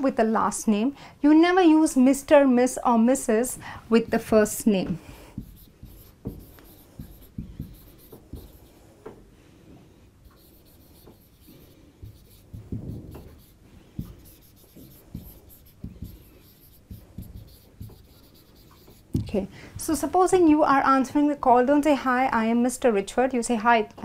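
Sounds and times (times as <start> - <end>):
marker pen writing on whiteboard: 3.9 - 9.3, 10.2 - 19.4.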